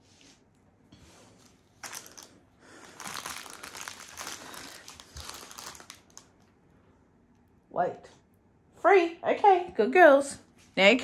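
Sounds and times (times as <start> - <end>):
plastic wrapping crinkling: 1.4 - 6.6.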